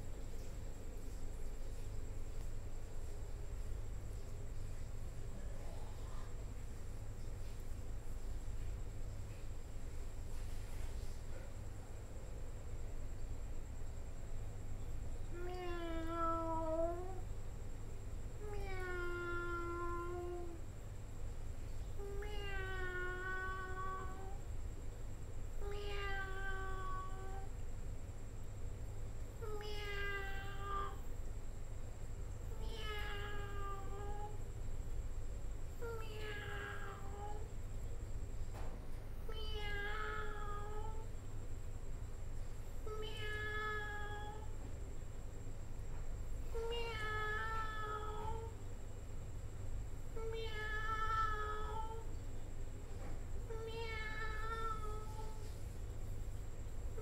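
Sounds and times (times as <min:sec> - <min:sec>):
steady low hum: 0:00.0 - 0:57.0
cat meowing: 0:15.4 - 0:17.2, 0:25.6 - 0:27.4, 0:46.6 - 0:48.6, 0:50.2 - 0:52.1, 0:53.5 - 0:55.4.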